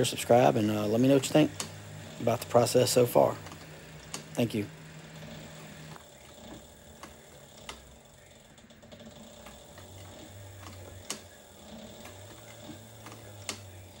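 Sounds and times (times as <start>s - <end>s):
sewing machine motor hum: 0.0s - 14.0s
sewing machine clicks: 1.1s - 1.8s.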